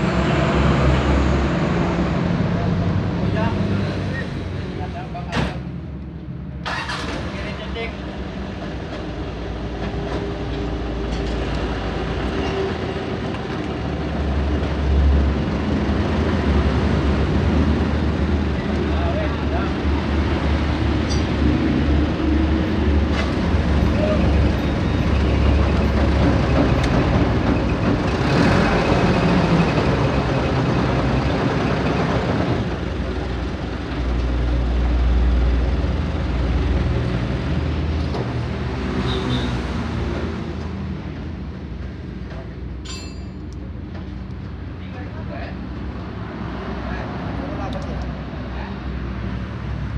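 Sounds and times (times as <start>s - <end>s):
traffic rumble: 0.0s - 49.9s
sharp metallic clink: 42.8s - 43.5s.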